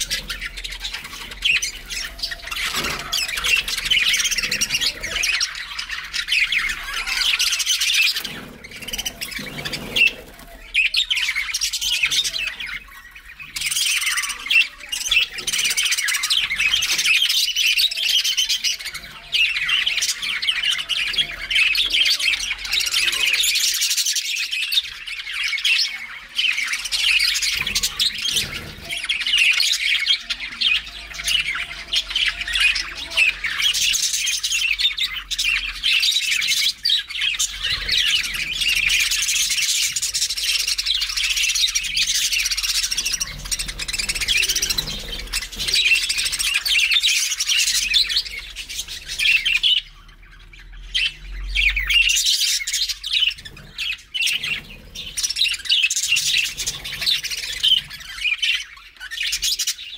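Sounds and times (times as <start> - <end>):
budgerigars chattering and chirping: 0.0 - 59.9.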